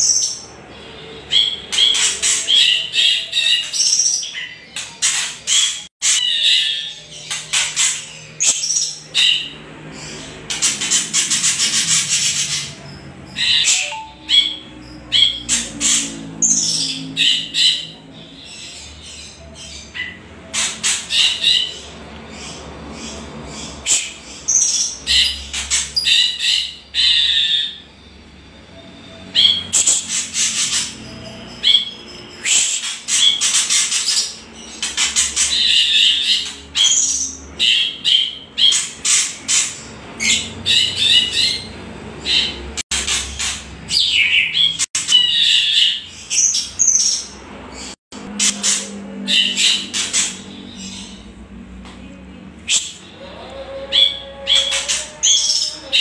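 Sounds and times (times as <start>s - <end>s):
birds harsh rattling chatter: 0.0s - 27.9s, 29.2s - 51.6s, 52.6s - 56.0s.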